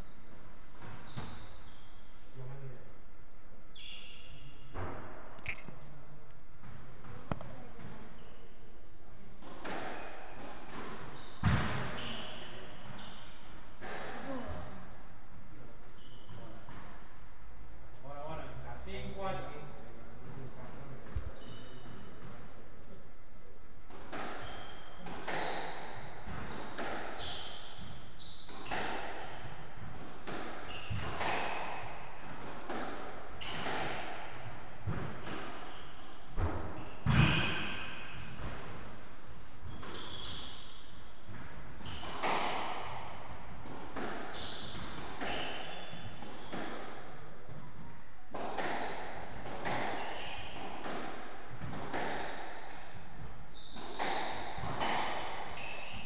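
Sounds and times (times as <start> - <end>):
shoe squeaks on wooden floor: 0.8 - 2.8, 3.7 - 4.7, 11.1 - 13.4, 15.9 - 16.6, 21.2 - 21.9, 27.2 - 28.9, 30.6 - 31.8, 36.7 - 38.3, 39.6 - 40.8, 42.9 - 47.0, 53.5 - 56.0.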